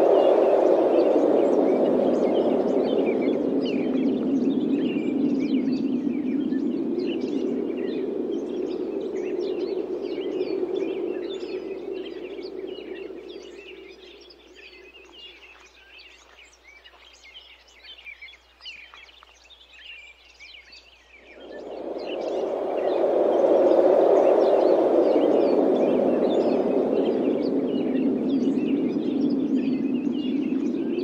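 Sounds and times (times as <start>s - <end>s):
wind blowing in gusts: 0.0s - 16.8s, 21.1s - 31.0s
small birds chirping: 0.0s - 31.0s.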